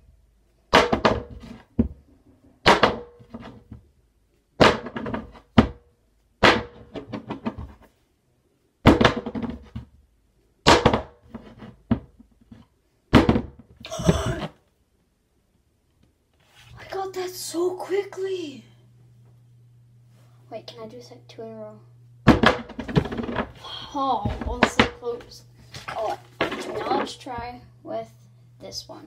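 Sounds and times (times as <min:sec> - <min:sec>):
person gasping: 0:13.8 - 0:14.5.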